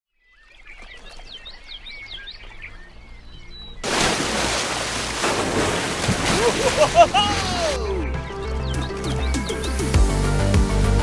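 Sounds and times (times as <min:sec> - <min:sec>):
birds chirping: 0:00.2 - 0:10.4
whitewater rapids rushing: 0:03.8 - 0:08.1.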